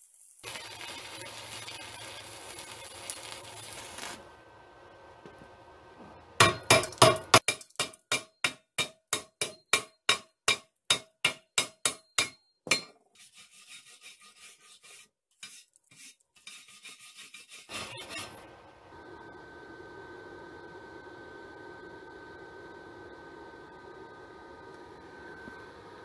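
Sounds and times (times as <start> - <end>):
chipping hammer striking metal: 6.4 - 12.9.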